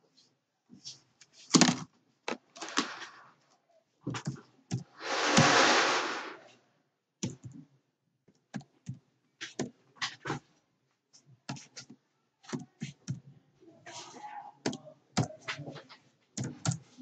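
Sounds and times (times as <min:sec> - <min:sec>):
loud hiss: 0:05.0 - 0:06.4.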